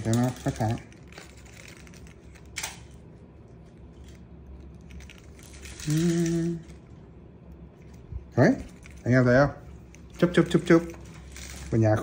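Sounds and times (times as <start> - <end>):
man humming: 5.8 - 6.8.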